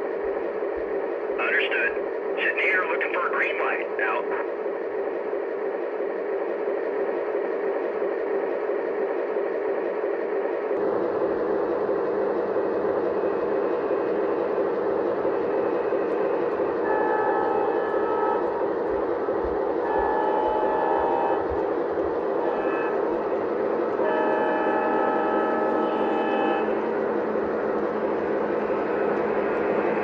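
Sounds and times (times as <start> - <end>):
short steady tones: 19.8 - 21.6.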